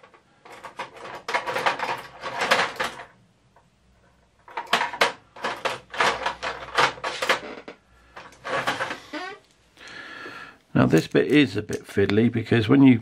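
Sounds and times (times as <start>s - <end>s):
tools clattering together: 0.4s - 3.1s.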